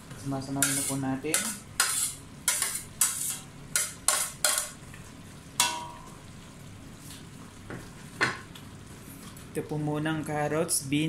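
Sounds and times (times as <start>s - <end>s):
vegetables sizzling: 0.3s - 9.5s
spatula clacking on plate and pot: 0.6s - 4.8s, 5.6s - 6.0s.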